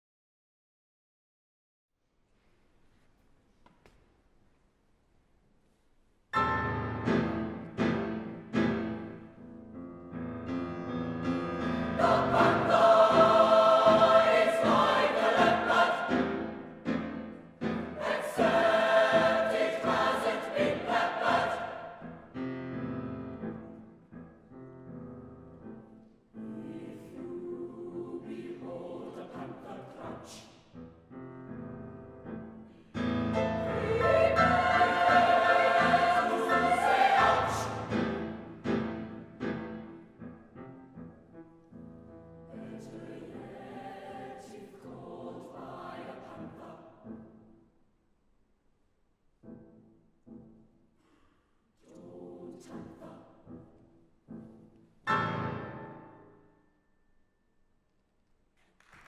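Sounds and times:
piano accompaniment: 0:06.4 - 0:29.2, 0:30.7 - 0:43.7, 0:52.9 - 0:56.5
choir singing: 0:11.6 - 0:22.4, 0:26.4 - 0:30.6, 0:33.2 - 0:39.1, 0:42.5 - 0:47.5, 0:51.8 - 0:53.8.

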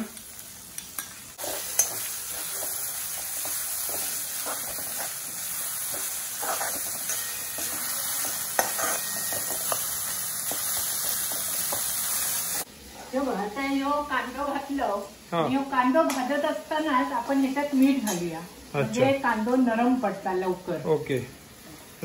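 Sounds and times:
onions sizzling in hot oil: 0:00.0 - 0:22.0
metal spatula scraping pan: 0:01.4 - 0:10.6.

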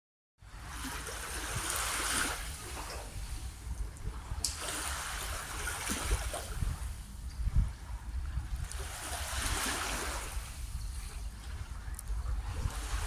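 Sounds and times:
wind rumble on microphone: 0:00.4 - 0:13.0
small waves lapping: 0:00.5 - 0:13.0.

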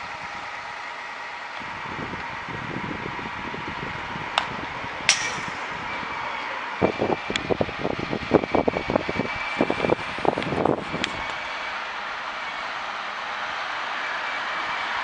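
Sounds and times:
baseball bat cracks: 0:05.1 - 0:05.7.

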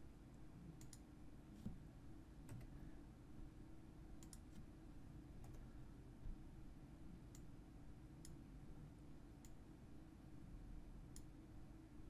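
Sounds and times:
computer mouse clicks: 0:00.8 - 0:01.7, 0:02.5 - 0:02.8, 0:04.2 - 0:04.7, 0:05.4 - 0:05.6, 0:11.1 - 0:11.3.

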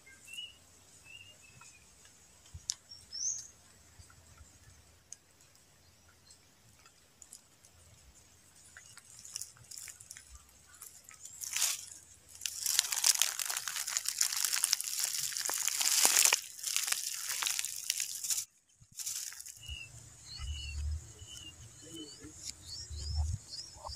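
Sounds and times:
dry leaves crunching: 0:08.7 - 0:20.5
high bird chirps: 0:19.3 - 0:23.9.

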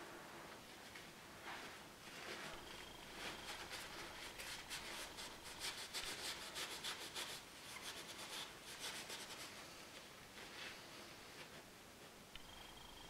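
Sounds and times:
kitchen paper rustling: 0:01.4 - 0:11.6.

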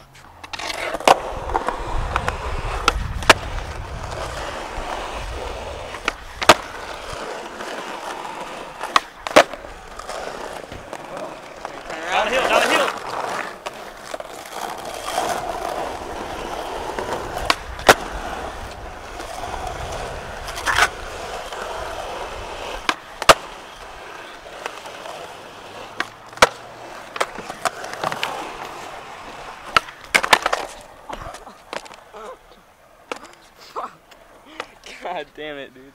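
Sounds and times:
skateboard wheels rolling on asphalt: 0:00.0 - 0:35.9
skateboard landing clack: 0:01.0 - 0:03.8, 0:05.9 - 0:06.7, 0:08.8 - 0:14.6, 0:16.9 - 0:19.3, 0:22.8 - 0:23.9, 0:25.9 - 0:28.6, 0:29.2 - 0:32.0
skateboard tail pop: 0:22.8 - 0:23.5.

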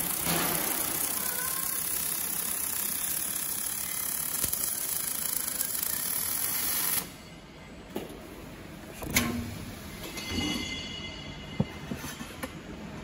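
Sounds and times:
welding arc hissing and crackling: 0:00.0 - 0:07.1.

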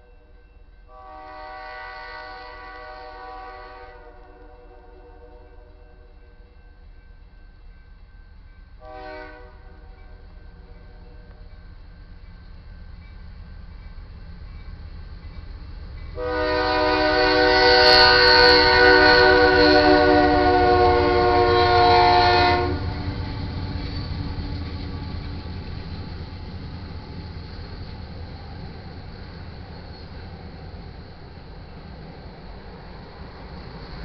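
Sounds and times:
train rumbling past: 0:00.0 - 0:34.0
locomotive air horn: 0:00.9 - 0:05.8, 0:08.8 - 0:10.0, 0:16.2 - 0:23.1.

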